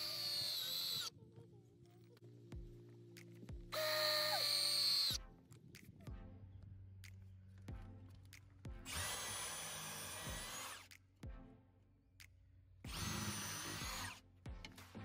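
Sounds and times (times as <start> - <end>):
drill boring into wood: 0.0 - 1.1, 3.8 - 5.2, 8.9 - 10.8, 12.9 - 14.2
faint background music: 0.0 - 15.0.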